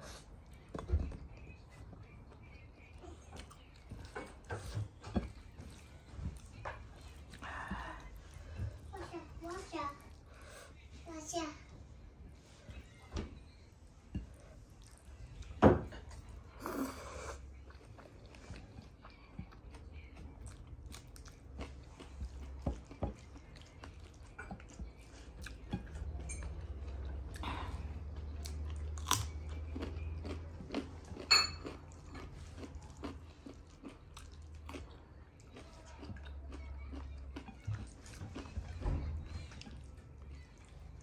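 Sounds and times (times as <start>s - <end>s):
person chewing with wet mouth sounds: 0.0s - 10.6s, 14.1s - 41.0s
food crunches: 28.9s - 34.9s.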